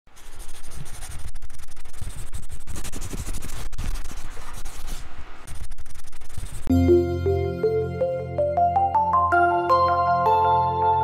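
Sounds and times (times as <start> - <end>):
felt-tip pen scratching on paper: 0.1 - 6.7.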